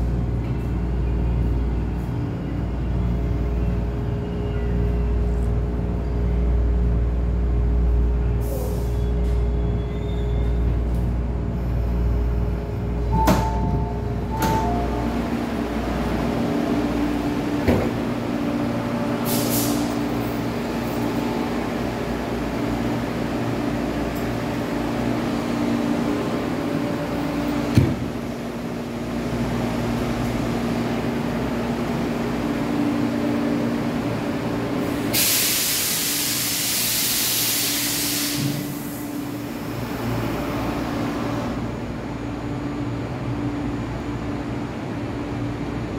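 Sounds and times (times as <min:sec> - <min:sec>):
train running noise: 0:00.0 - 0:45.9
compressed air hiss: 0:19.2 - 0:20.0, 0:35.1 - 0:39.0.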